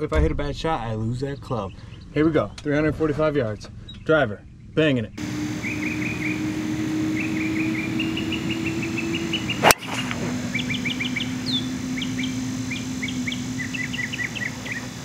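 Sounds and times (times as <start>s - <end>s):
birds chirping: 0.9s - 15.0s
steady low hum: 1.5s - 15.0s
golf club striking ball: 9.2s - 11.8s.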